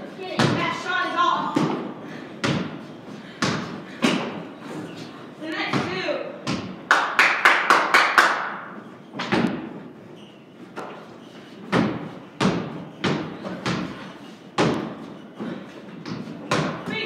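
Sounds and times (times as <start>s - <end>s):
basketball bouncing on wooden floor: 0.3s - 2.8s, 3.4s - 4.4s, 5.7s - 6.8s, 11.7s - 17.0s.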